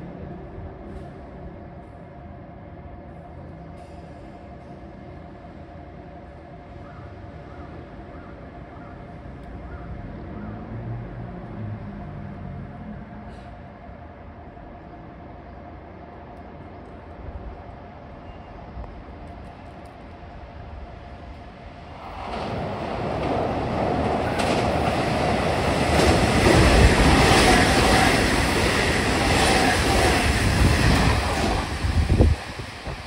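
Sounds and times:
electric train passing: 0.0s - 33.0s
wheels clacking over rail joints: 22.0s - 31.7s.

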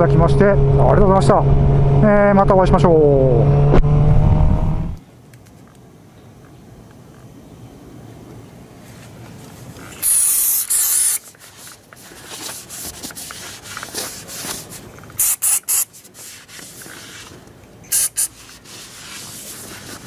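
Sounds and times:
cloth rubbing metal: 9.8s - 20.0s
aerosol can spraying: 10.0s - 11.3s, 12.4s - 17.3s, 17.9s - 20.0s.

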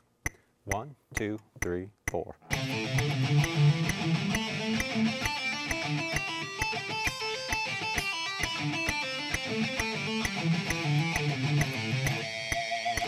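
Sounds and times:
metronome clicking: 0.2s - 13.0s
fast electric guitar notes: 2.5s - 13.0s.

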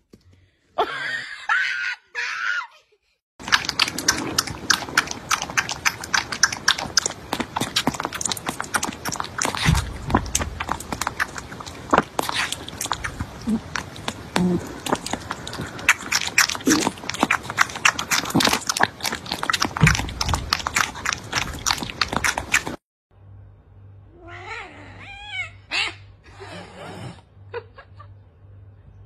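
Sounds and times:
kitten suckling wet clicks: 3.4s - 22.8s.

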